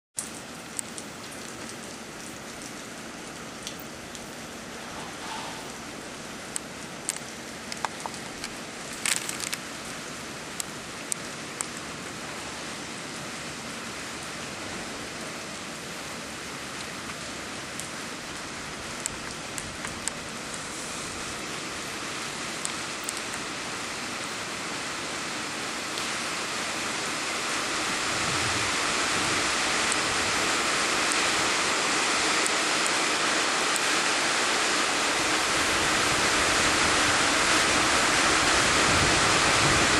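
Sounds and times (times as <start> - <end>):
sharp taps of raindrops: 0.2 - 4.3, 6.5 - 9.7
heavy rain hissing: 0.2 - 39.9.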